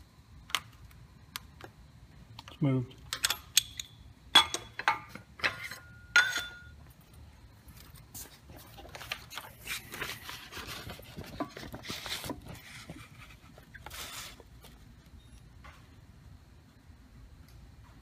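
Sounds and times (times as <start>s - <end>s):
metal clinks and knocks: 3.1s - 6.8s
paper rustling and handling: 7.8s - 14.8s.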